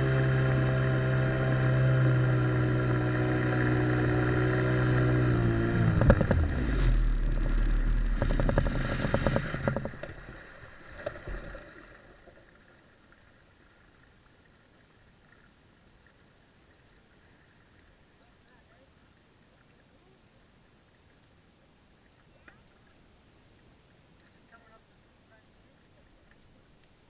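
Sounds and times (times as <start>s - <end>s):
outboard motor running: 0.0s - 12.4s.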